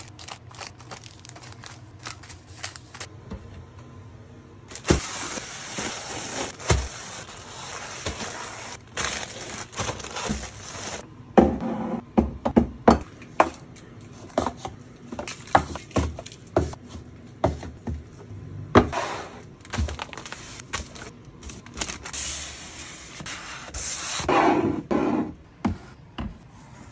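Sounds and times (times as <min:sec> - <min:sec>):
plastic snack bags crinkling: 0:00.0 - 0:03.1, 0:04.7 - 0:11.0, 0:19.6 - 0:22.2.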